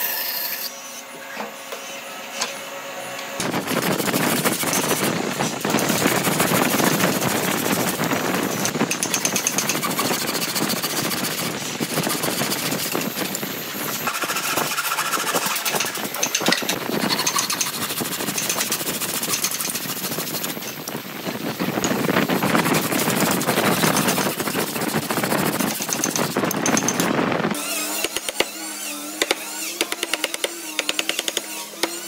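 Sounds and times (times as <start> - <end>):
hand saw cutting wood: 3.4 - 20.6, 27.6 - 32.0.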